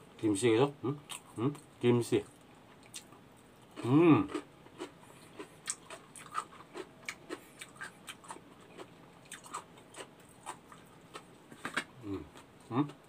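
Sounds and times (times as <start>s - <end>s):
man chewing food: 2.3s - 13.0s
man humming mm: 12.0s - 13.0s.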